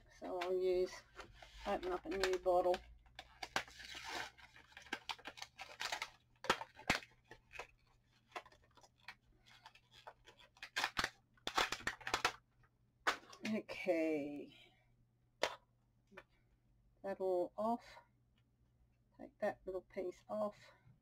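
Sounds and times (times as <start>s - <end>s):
plastic clicks and crinkling: 0.1s - 13.6s
sharp plastic snaps: 1.2s - 3.8s, 4.8s - 12.4s, 15.4s - 15.6s.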